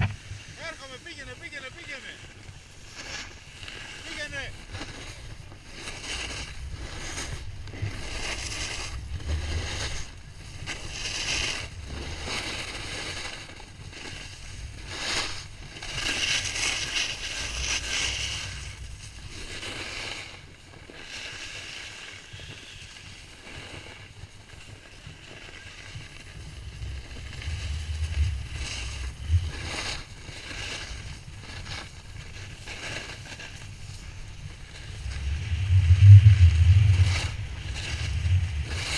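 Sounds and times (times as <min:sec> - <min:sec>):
snowboard scraping over snow: 0:00.0 - 0:38.9
wind buffeting microphone: 0:26.0 - 0:32.2, 0:33.8 - 0:38.9.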